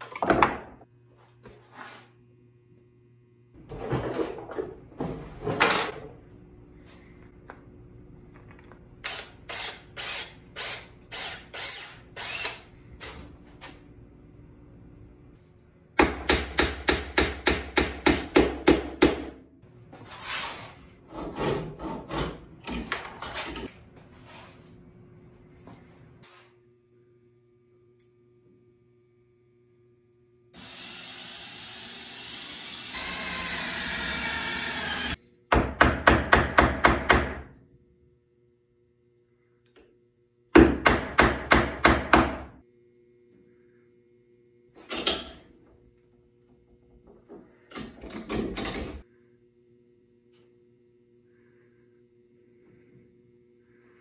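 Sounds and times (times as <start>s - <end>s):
handheld drill boring wood: 9.1s - 12.6s, 30.6s - 35.2s.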